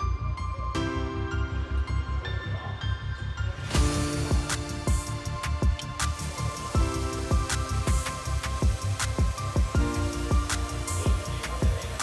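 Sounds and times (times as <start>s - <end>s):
pulsing bass: 3.8s - 12.0s.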